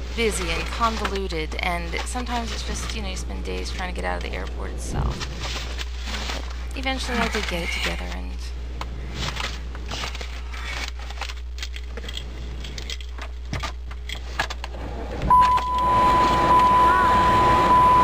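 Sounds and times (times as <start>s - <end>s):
papers and keys rustling: 5.2s - 8.3s, 9.1s - 14.6s
loud steady beep: 15.3s - 18.0s.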